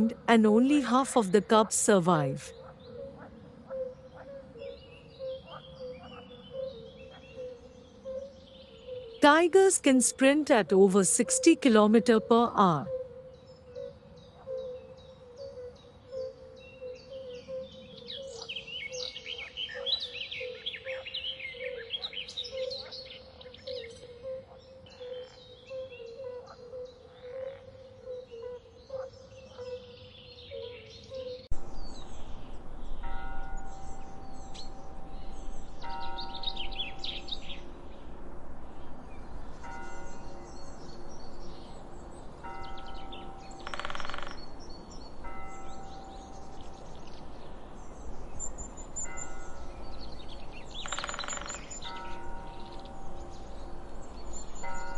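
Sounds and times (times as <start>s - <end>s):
birds chirping: 0.0s - 54.9s
soft music with bell-like tones: 31.7s - 54.9s.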